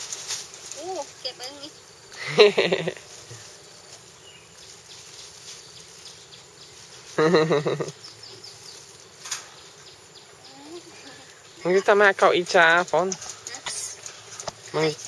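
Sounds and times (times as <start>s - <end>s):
insects: 0.0s - 15.0s.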